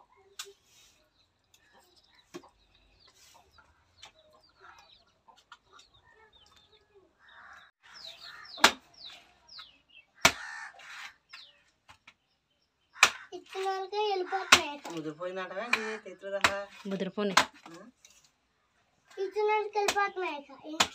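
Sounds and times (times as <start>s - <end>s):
chickens clucking: 1.0s - 11.5s.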